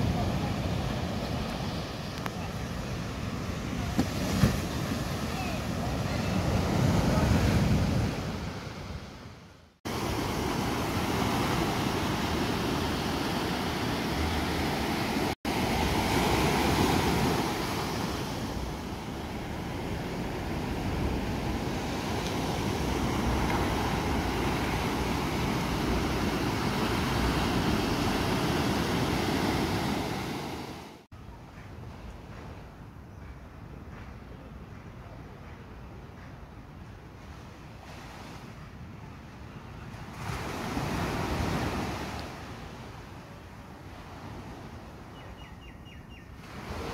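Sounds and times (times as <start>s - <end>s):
surf breaking on beach: 9.9s - 31.1s.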